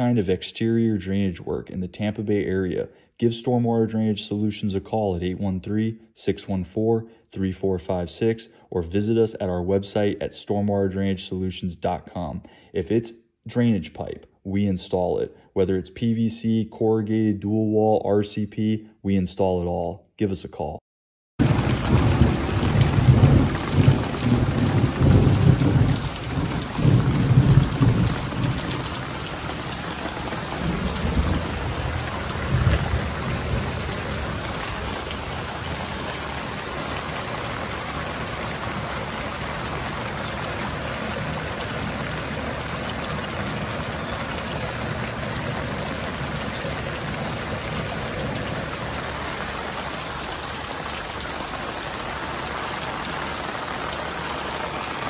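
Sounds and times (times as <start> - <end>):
rain on wet concrete: 21.4 - 55.0.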